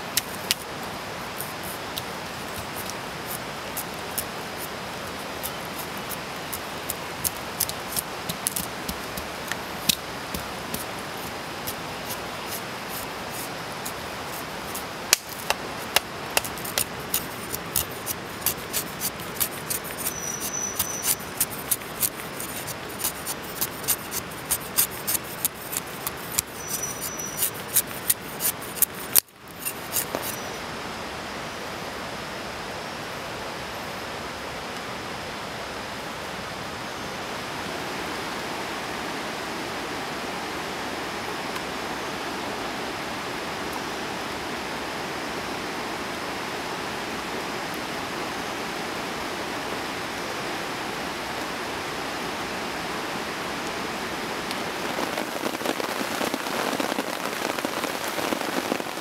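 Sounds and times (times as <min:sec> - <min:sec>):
heavy rain hissing: 0:00.0 - 0:33.4, 0:37.3 - 0:59.0
knife shaving wood: 0:00.1 - 0:00.7, 0:01.3 - 0:30.4.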